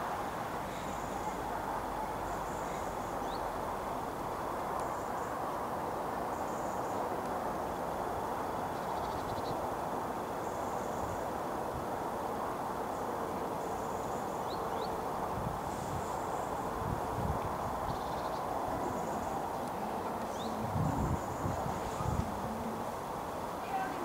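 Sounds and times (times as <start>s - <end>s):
steady background hiss: 0.0s - 24.0s
insects chirping: 7.7s - 24.0s.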